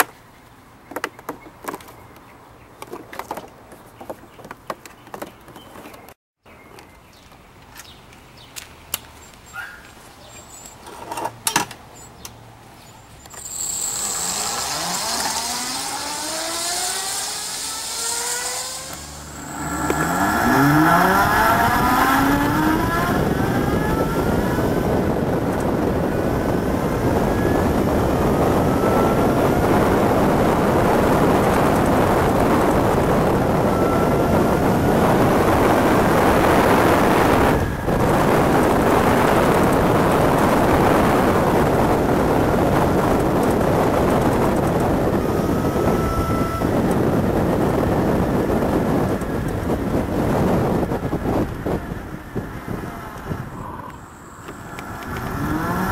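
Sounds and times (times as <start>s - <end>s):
electric motor whining: 13.4s - 55.9s
wind rush on microphone: 14.0s - 55.9s.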